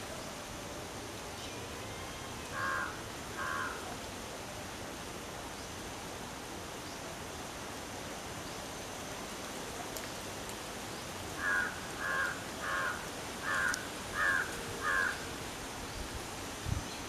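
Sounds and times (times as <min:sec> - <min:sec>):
steady background hiss: 0:00.0 - 0:17.0
crow cawing: 0:02.6 - 0:03.8, 0:11.4 - 0:15.2.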